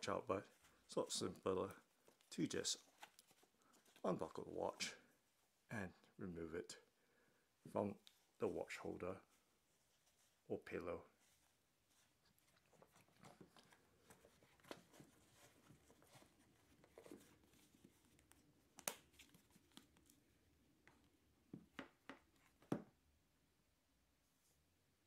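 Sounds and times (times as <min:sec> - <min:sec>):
soft leather rubbing: 0:08.2 - 0:18.6.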